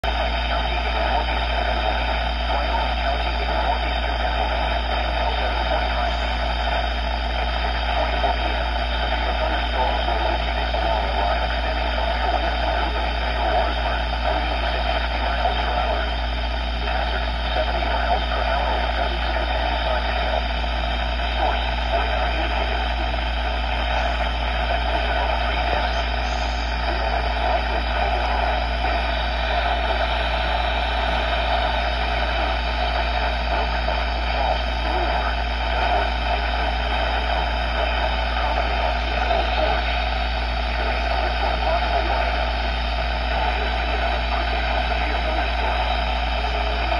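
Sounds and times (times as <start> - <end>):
radio static hiss: 0.0 - 46.9
low hum: 11.9 - 42.4.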